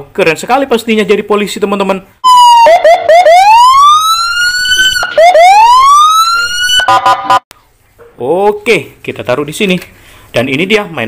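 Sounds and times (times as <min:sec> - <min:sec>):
police siren: 0:02.2 - 0:07.4.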